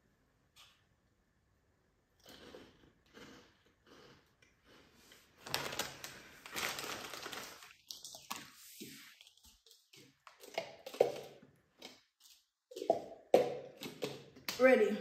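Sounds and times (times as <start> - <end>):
plastic wrapper crinkling: 5.4 - 9.8.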